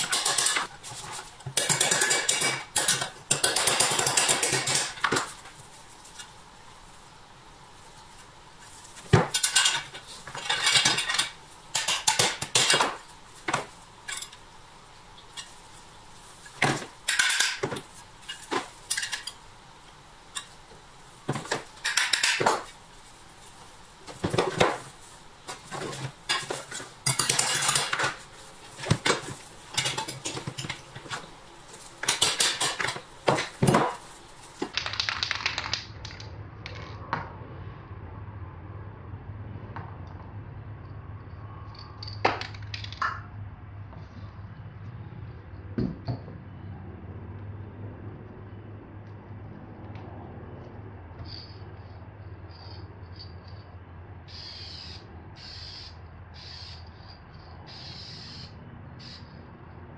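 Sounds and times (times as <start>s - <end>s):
metal clinking and scraping: 8.6s - 14.5s, 16.4s - 19.5s, 24.0s - 34.8s.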